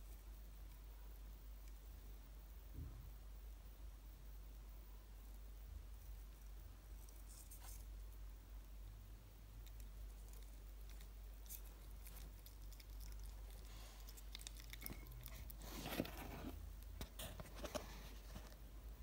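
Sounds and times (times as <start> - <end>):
low steady hum: 0.0 - 19.0
hedgehog chewing soft fruit: 4.5 - 19.0.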